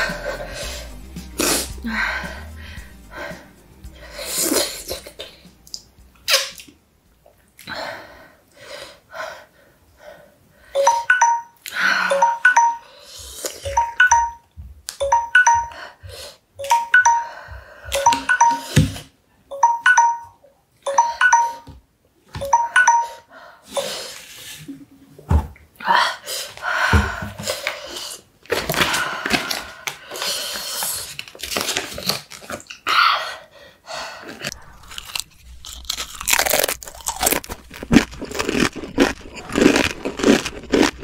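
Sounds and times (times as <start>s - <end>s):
bell-like chimes: 10.8s - 13.0s, 13.7s - 14.4s, 18.0s - 18.8s, 19.5s - 21.7s, 22.4s - 23.2s.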